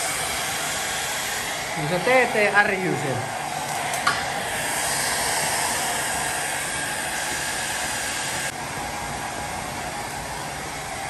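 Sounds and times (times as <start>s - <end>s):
heat gun blowing air: 0.0s - 8.6s.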